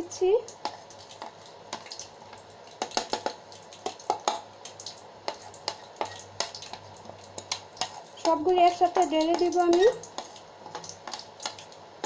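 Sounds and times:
metal spoon tapping plastic tray: 8.2s - 10.0s.

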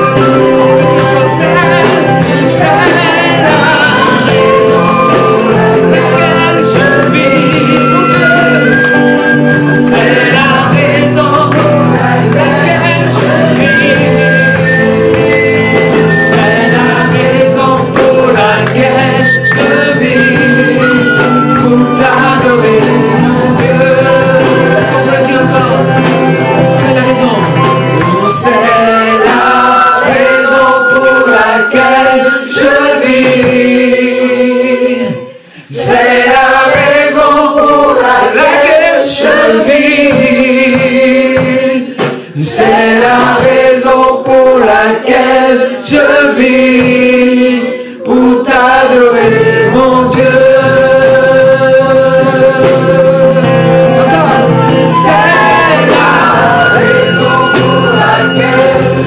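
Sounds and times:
electric guitar: 0.0s - 36.1s, 48.6s - 59.0s
group singing gospel song: 0.0s - 59.0s
man singing into microphone: 0.0s - 59.0s.

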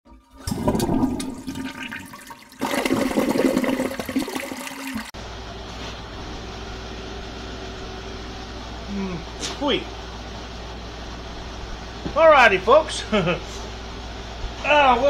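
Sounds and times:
water gushing: 0.2s - 5.1s
steady low hum: 5.2s - 15.0s.

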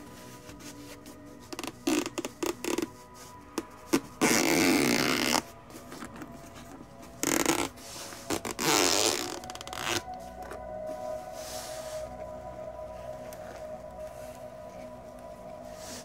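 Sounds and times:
zipper rasping: 3.9s - 5.5s, 7.2s - 10.1s.

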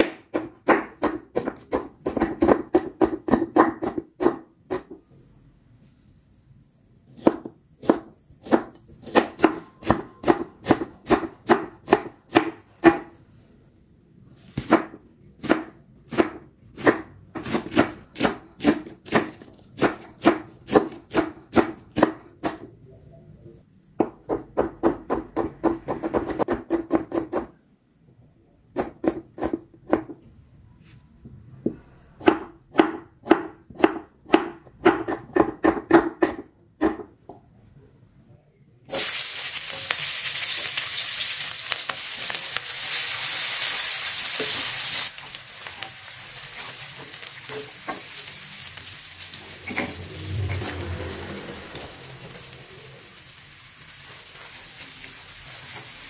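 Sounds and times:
knife chopping on wooden board: 0.0s - 5.0s, 7.2s - 13.1s, 32.2s - 37.1s.

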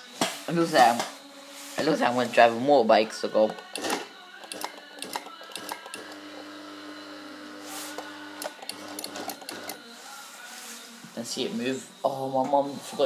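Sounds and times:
sewing machine motor humming: 3.5s - 9.8s.

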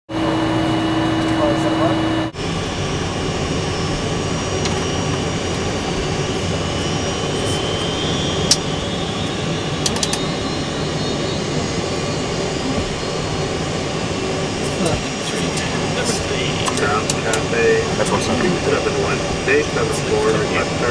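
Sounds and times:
jet engines running: 0.1s - 20.9s
sharp clicks: 9.8s - 10.3s.

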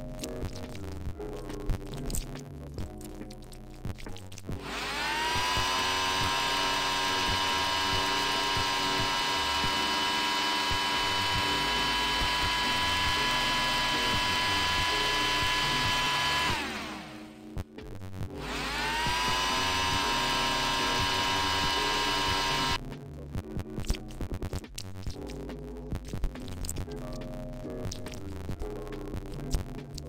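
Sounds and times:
electric nail drill whining: 4.6s - 17.5s, 18.4s - 22.8s.

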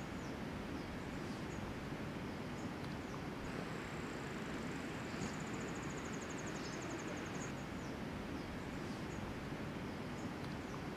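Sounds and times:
faint high-pitched chirps: 2.3s - 9.3s.

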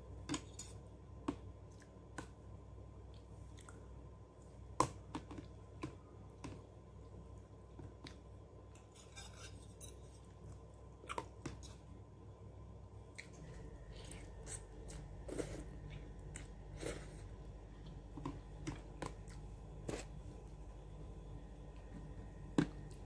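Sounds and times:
person chewing noodles: 13.1s - 20.4s.

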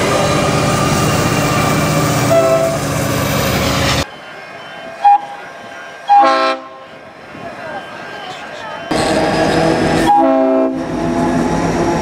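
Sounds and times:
diesel locomotive passing: 0.0s - 12.0s
distant locomotive horn blast: 2.2s - 2.8s, 6.1s - 6.9s, 8.9s - 11.9s
locomotive horn: 2.2s - 2.8s, 5.0s - 5.4s, 6.1s - 6.9s, 8.9s - 11.5s.

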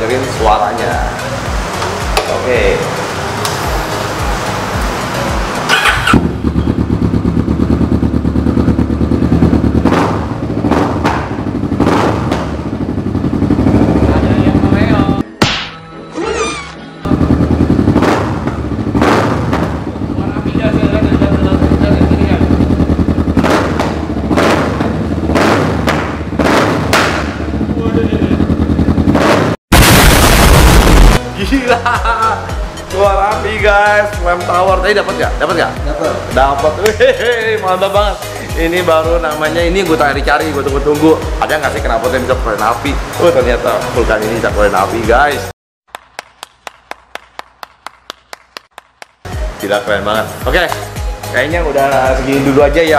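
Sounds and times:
engine at high revs: 2.8s - 14.7s, 17.1s - 20.2s, 21.2s - 29.6s
exhaust cracking: 4.3s - 15.1s, 17.1s - 31.2s
motorcycle engine idling: 5.4s - 11.8s, 12.4s - 15.2s, 17.1s - 25.3s, 27.3s - 29.1s
electric starter cranking: 5.6s - 6.3s.

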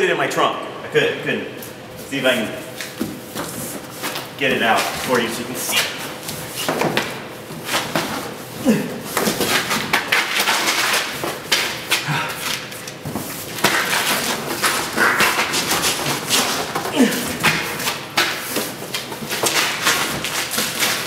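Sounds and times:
grunts of effort: 8.6s - 9.1s, 12.0s - 12.6s, 14.9s - 15.5s, 16.8s - 17.8s.

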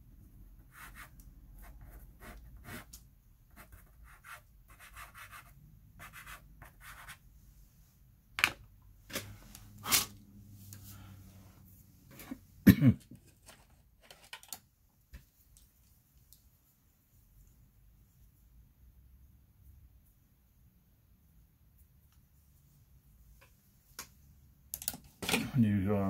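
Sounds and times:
pencil scratching on paper: 0.6s - 7.2s.

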